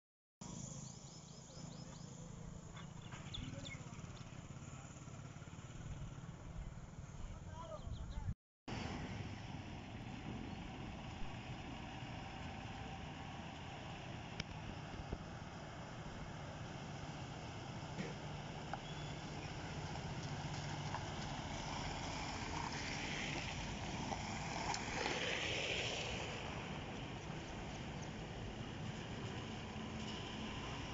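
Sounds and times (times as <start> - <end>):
low engine hum: 0.4 - 30.9
birds chirping: 0.5 - 5.0, 7.2 - 8.4, 18.8 - 19.7.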